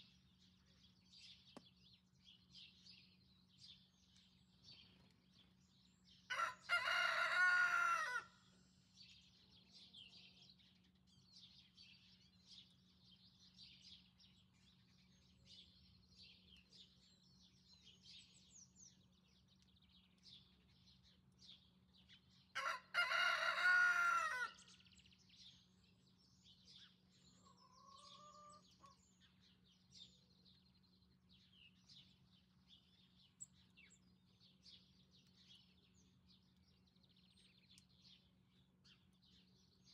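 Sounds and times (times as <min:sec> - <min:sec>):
small birds chirping: 0:00.0 - 0:39.9
rooster crowing: 0:06.3 - 0:08.4, 0:22.6 - 0:24.7.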